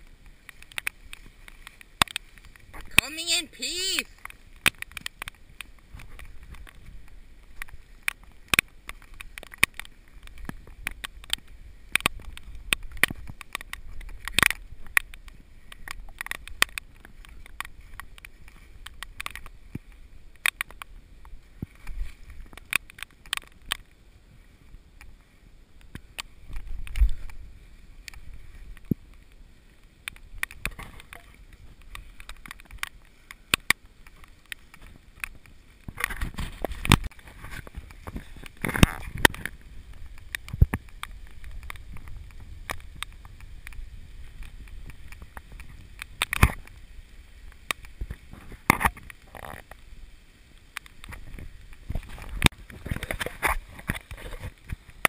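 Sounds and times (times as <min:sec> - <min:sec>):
rain ticking on camera housing: 0:00.0 - 0:55.0
camera handling rumble: 0:30.0 - 0:46.7.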